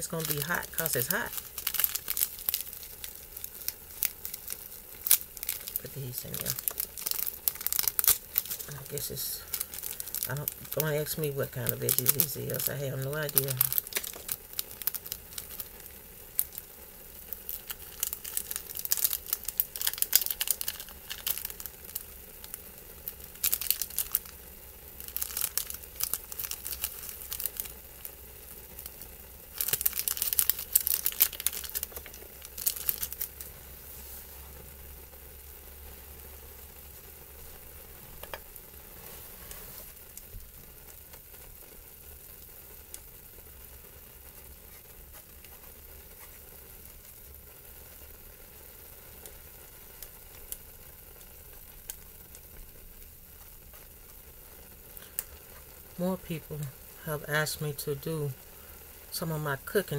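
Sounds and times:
plastic packets crinkling and tearing: 0.0 - 33.5, 50.0 - 56.0
faint steady hiss: 0.0 - 59.9.

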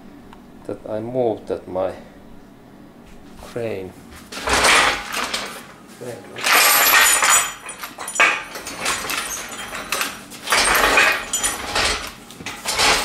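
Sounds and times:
steel chains jangling and clinking: 6.3 - 13.0.

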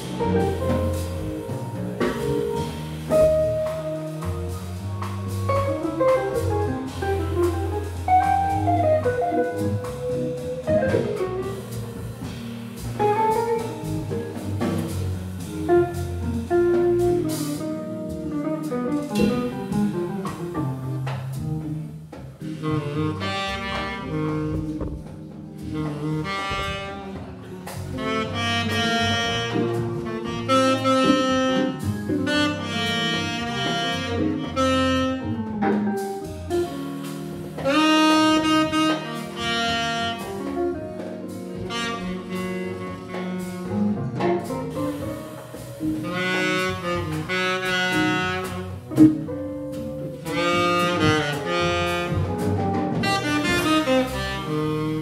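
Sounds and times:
live jazz quartet: 0.0 - 55.0
tenor saxophone long notes: 22.6 - 25.0, 25.7 - 35.4, 37.6 - 40.8, 41.6 - 44.0, 46.0 - 49.0, 50.2 - 55.0.

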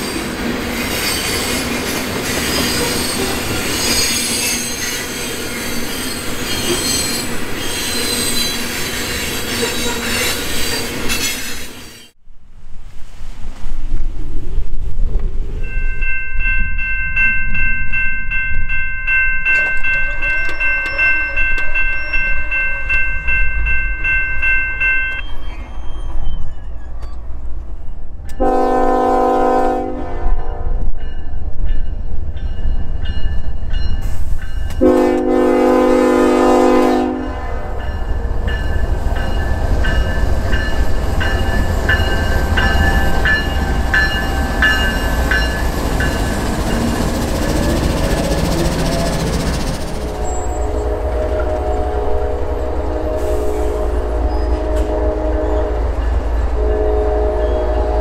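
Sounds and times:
crossing bell ringing: 15.6 - 26.2, 31.0 - 35.4, 36.0 - 52.7
train horn blasts: 28.4 - 30.9, 34.8 - 37.8, 50.0 - 58.0
locomotives rumbling past: 34.8 - 58.0.

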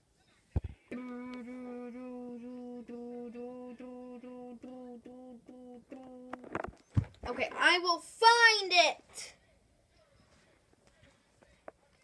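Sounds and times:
child humming: 0.9 - 6.4.

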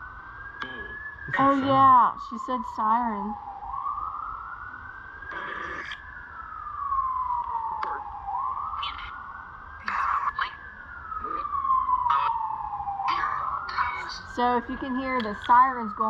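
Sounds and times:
siren wailing: 0.0 - 16.0
radio static crackles: 0.6 - 2.1, 5.2 - 6.1.

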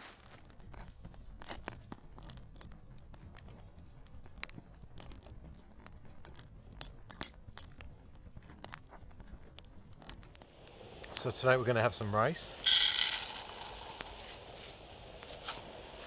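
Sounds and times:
campfire crackling and popping: 0.0 - 16.0.

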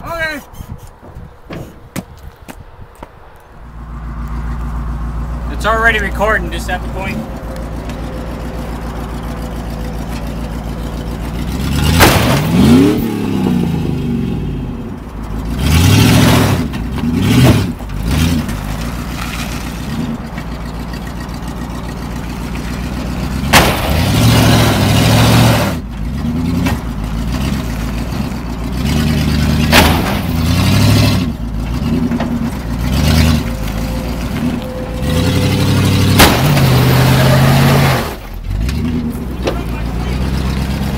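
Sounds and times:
car engine revving: 3.6 - 40.9
sharp bangs: 11.6 - 13.6, 23.4 - 25.8, 29.6 - 31.3, 32.0 - 38.3.

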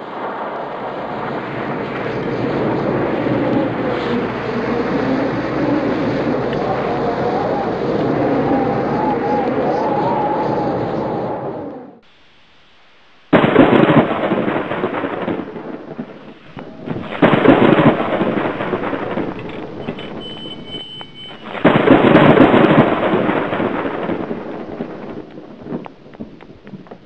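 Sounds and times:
thunder rumbling: 0.0 - 12.0, 13.3 - 27.0.

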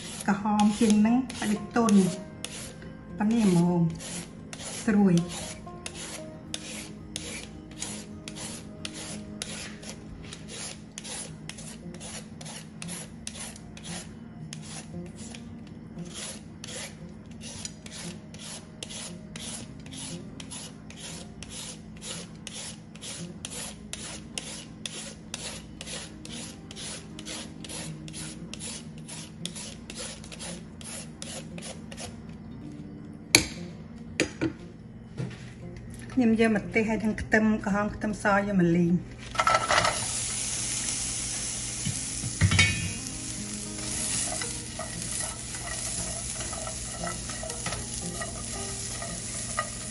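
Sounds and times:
peeler rasping on mango: 0.0 - 32.2, 43.3 - 49.9.

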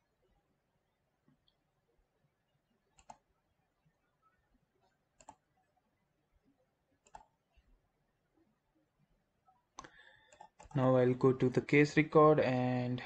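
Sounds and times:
faint mouse button clicks: 4.8 - 5.4, 7.0 - 7.4.

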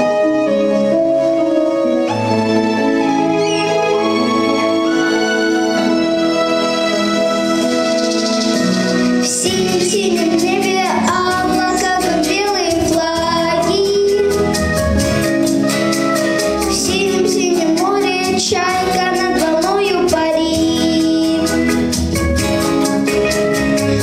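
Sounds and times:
instrumental music with steady beat: 0.0 - 24.0
girl singing into microphone: 9.2 - 14.8, 16.6 - 21.9.

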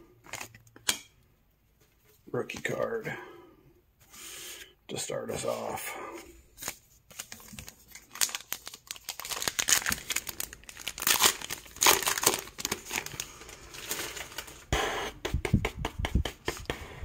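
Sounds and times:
plastic wrapper tearing and crinkling: 6.6 - 14.7.

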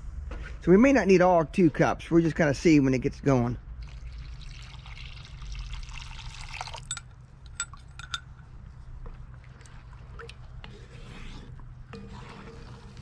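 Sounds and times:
liquid pouring into pot: 3.8 - 8.2
light clinks: 6.8 - 8.4
wooden spoon stirring: 7.8 - 13.0.

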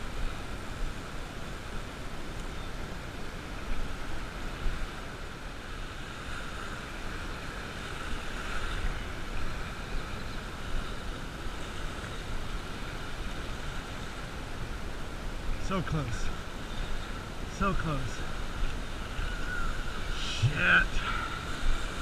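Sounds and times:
small waves washing onto sand: 0.0 - 22.0.

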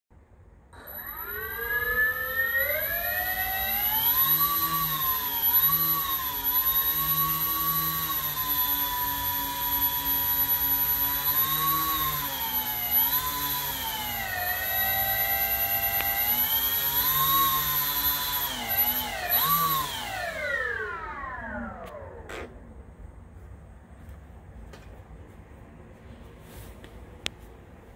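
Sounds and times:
model plane motors whining: 0.8 - 22.6.

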